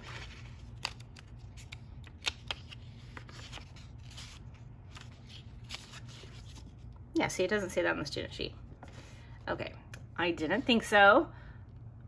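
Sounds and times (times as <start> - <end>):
paper pages rustling: 0.0 - 6.9.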